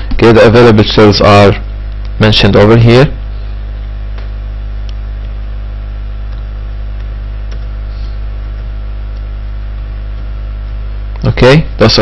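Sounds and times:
background hiss: 0.0 - 12.0
electrical hum: 0.0 - 12.0
computer keys clicking: 7.0 - 7.7.

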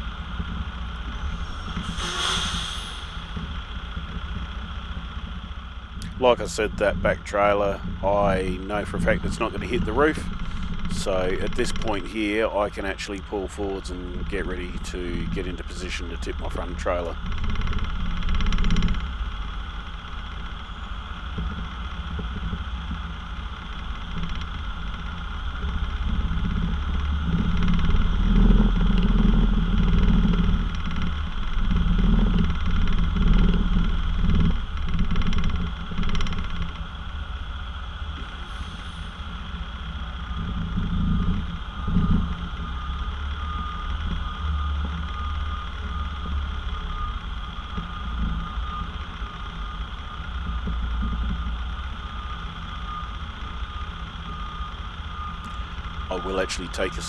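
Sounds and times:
truck diesel engine running: 0.0 - 57.0.

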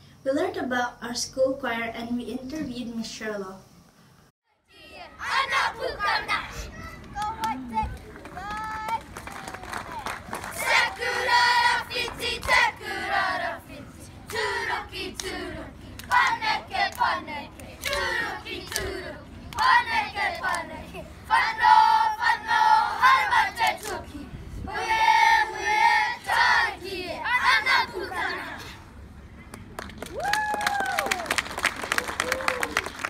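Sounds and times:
children chanting and singing: 4.5 - 9.0, 10.5 - 28.8.

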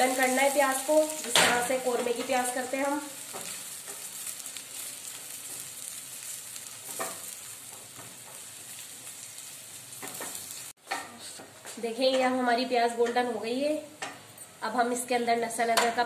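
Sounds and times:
wooden spatula stirring in pan: 0.0 - 10.7
onions sizzling in oil: 0.0 - 10.8.

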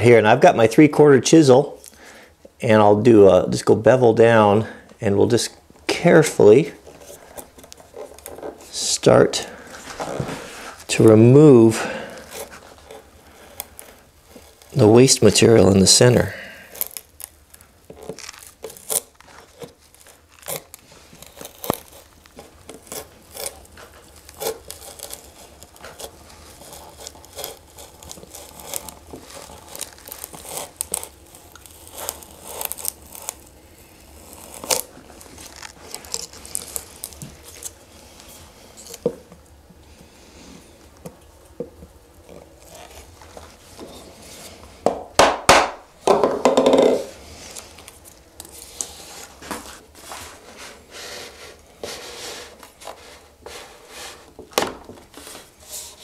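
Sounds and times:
chisel slicing wood: 20.5 - 33.5.

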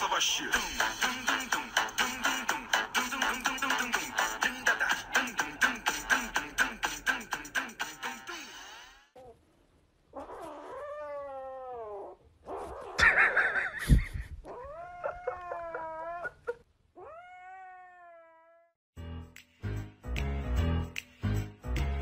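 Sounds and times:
music: 0.0 - 9.0, 19.0 - 22.0
cat yowling: 10.2 - 12.2, 14.4 - 18.8.

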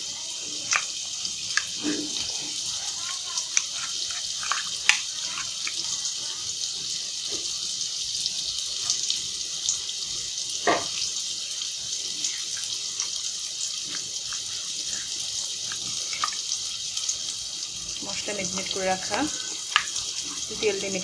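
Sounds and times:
onions sizzling in oil: 0.0 - 21.0.

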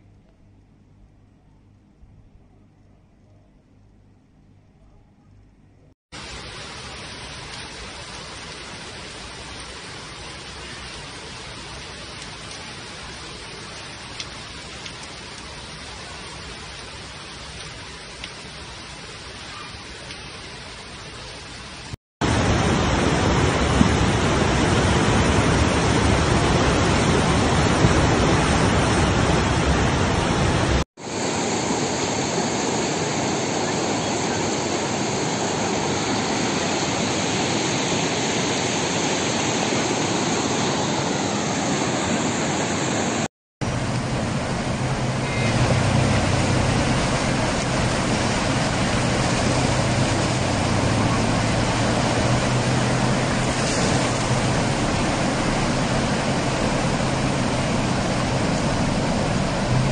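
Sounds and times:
low steady hum: 0.0 - 5.9
floodwater rushing: 6.1 - 59.9.

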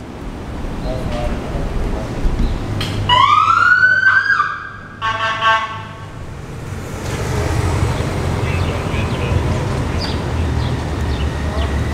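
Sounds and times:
police siren wail: 3.1 - 6.1
buzzy horn blast: 4.9 - 6.2.

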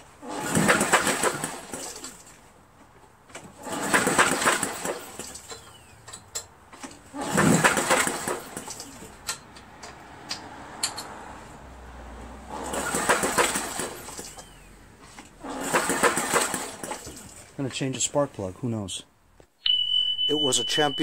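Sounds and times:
recoil starter rope pulls: 0.0 - 2.4, 3.3 - 5.8, 6.8 - 9.2, 12.5 - 14.5, 15.1 - 17.5.

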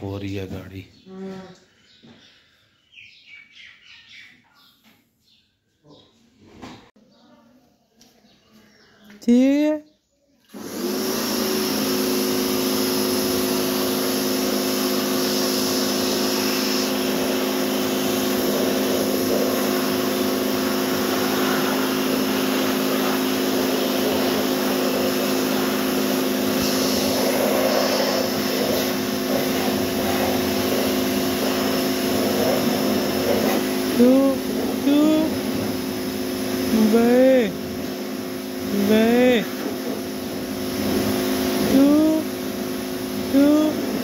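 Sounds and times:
pressure washer motor hum: 10.5 - 44.0
water jet hissing: 10.5 - 44.0.

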